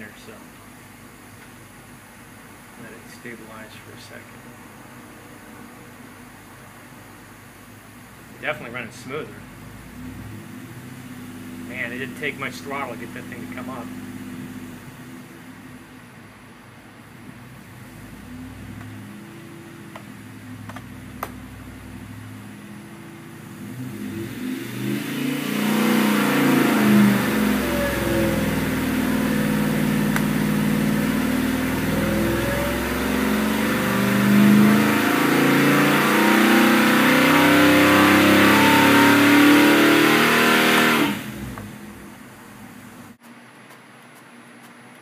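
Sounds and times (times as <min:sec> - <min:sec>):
engine idling and revving: 0:07.6 - 0:16.4, 0:17.2 - 0:43.2.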